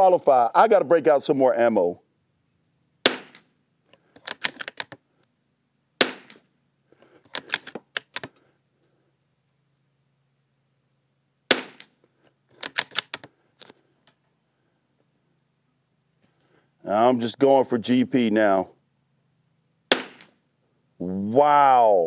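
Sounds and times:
rifle shots: 0:03.0 - 0:03.5, 0:06.0 - 0:06.5, 0:11.5 - 0:12.0, 0:19.9 - 0:20.4
rifle bolt metallic clicks: 0:03.3 - 0:05.0, 0:07.3 - 0:08.3, 0:12.5 - 0:13.8.

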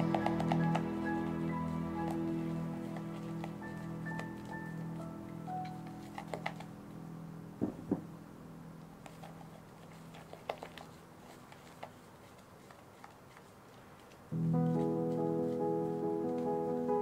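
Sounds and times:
soft knocks: 0:07.6 - 0:08.1.

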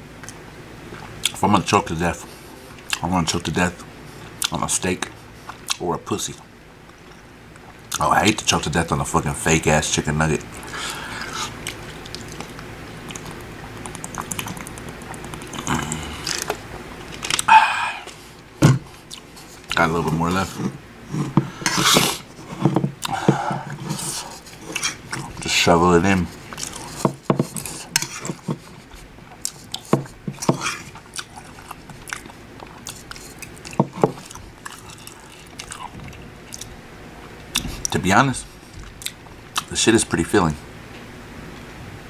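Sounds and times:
man swallowing: 0:10.6 - 0:19.3, 0:20.6 - 0:25.4
open-mouth chewing with lip smacks: 0:11.2 - 0:16.5, 0:30.8 - 0:36.7.

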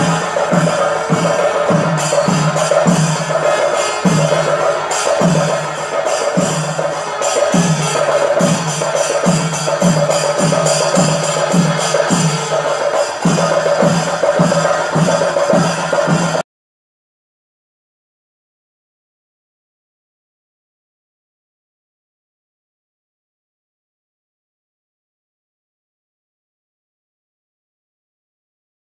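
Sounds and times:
quick high percussion hits: 0:00.0 - 0:16.4.

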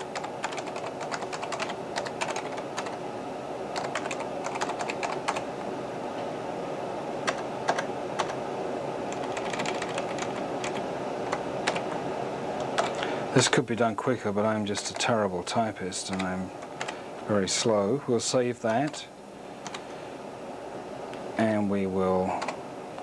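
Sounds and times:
keyboard typing: 0:00.0 - 0:03.0, 0:03.7 - 0:05.4, 0:07.2 - 0:08.4, 0:09.1 - 0:12.0, 0:12.6 - 0:13.0, 0:16.1 - 0:17.0, 0:19.6 - 0:19.8
steady hum: 0:00.0 - 0:23.0.

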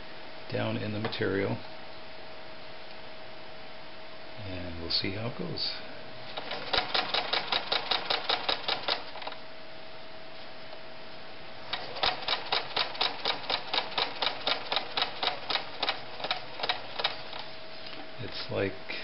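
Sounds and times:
sewing machine stitching: 0:06.4 - 0:09.3, 0:11.7 - 0:17.4.

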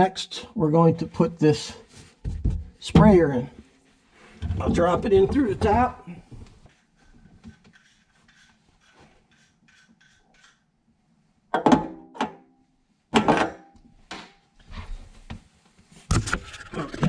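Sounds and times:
hose rubbing and ticking: 0:06.7 - 0:10.6.

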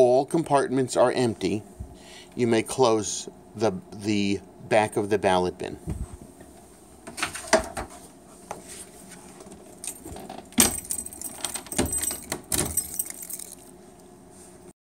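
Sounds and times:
keys jangling: 0:09.8 - 0:13.7.

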